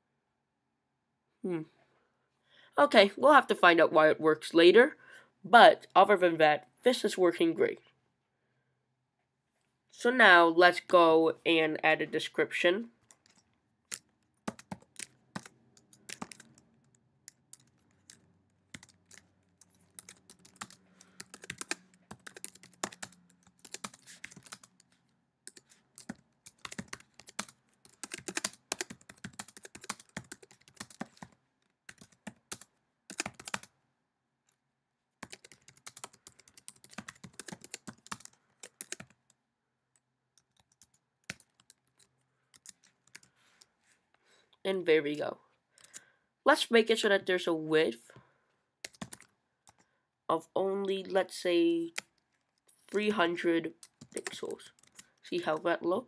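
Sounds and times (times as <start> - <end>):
computer keyboard typing: 13.0 - 33.7, 35.2 - 39.4, 40.3 - 43.3, 48.8 - 49.8, 53.8 - 55.2.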